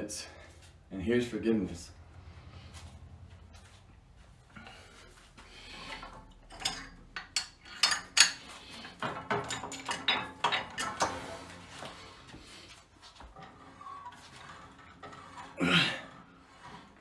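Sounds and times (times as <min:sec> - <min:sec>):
metal clicks and clanks: 0:05.8 - 0:12.0.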